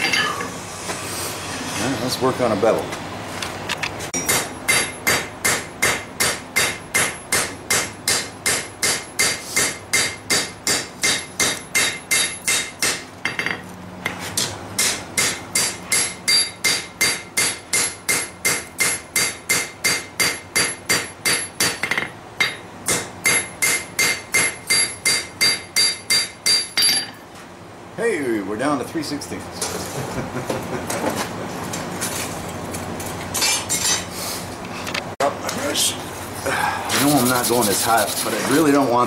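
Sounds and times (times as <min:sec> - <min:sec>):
hammer striking steel on anvil: 0:04.2 - 0:13.6, 0:14.4 - 0:27.2.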